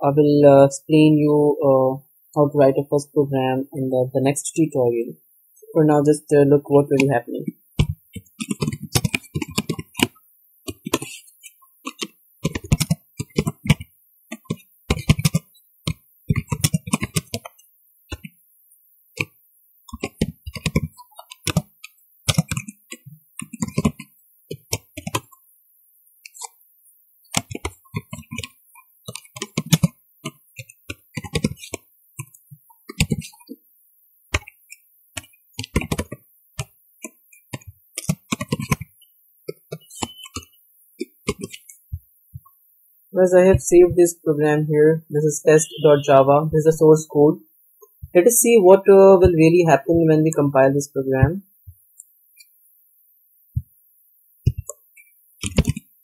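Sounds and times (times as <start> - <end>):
typing on computer keyboard: 7.8 - 11.2, 11.9 - 18.3, 19.9 - 25.3, 27.3 - 33.5, 35.2 - 41.7, 55.4 - 55.9.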